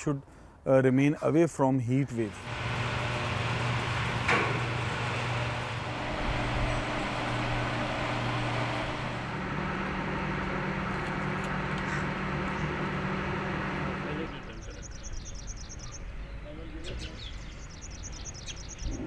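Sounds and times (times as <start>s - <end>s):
electric fans whirring: 2.1s - 16.2s
low motor hum: 2.3s - 16.3s.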